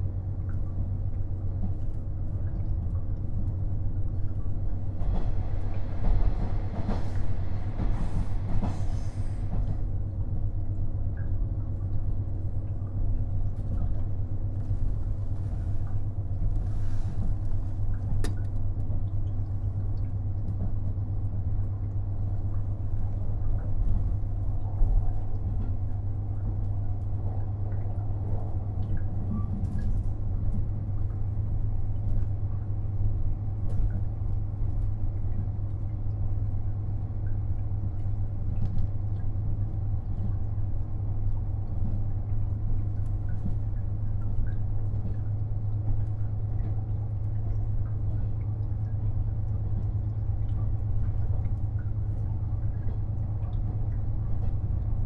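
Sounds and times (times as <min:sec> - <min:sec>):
diesel engine hum and rumble: 0:00.0 - 0:55.0.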